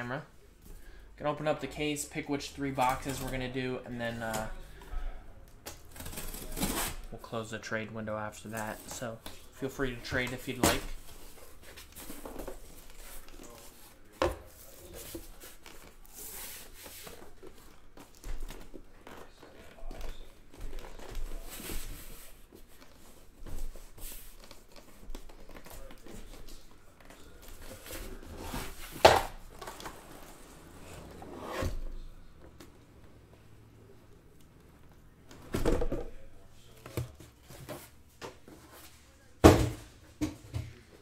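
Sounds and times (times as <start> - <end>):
cardboard and tape tearing: 5.7 - 7.1.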